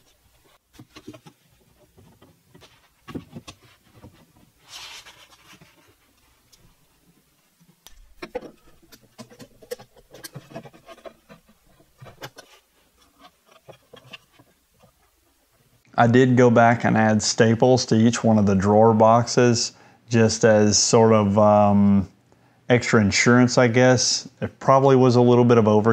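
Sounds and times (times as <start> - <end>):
wooden parts and clamps knocking: 7.9 - 14.4.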